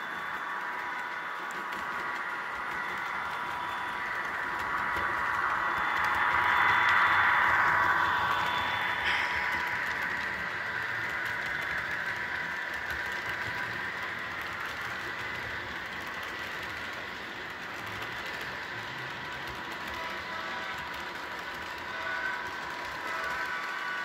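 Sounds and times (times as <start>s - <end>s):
model train wheels whirring: 0.0s - 24.0s.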